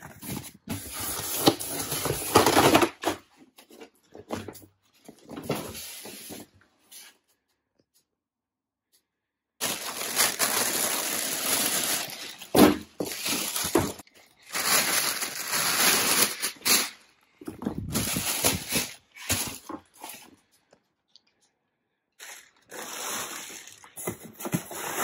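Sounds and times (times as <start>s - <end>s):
plastic wrap crinkling: 9.6s - 20.3s, 22.2s - 24.2s.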